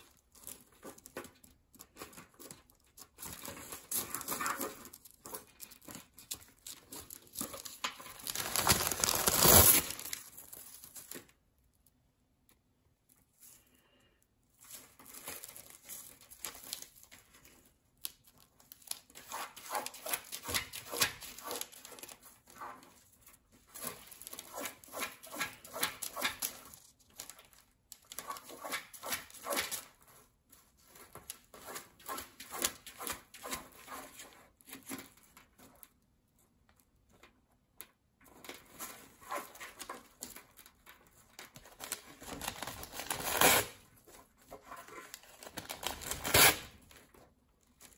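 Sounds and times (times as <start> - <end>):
parrot scratching through seed and paper: 1.8 - 11.2, 18.7 - 35.2.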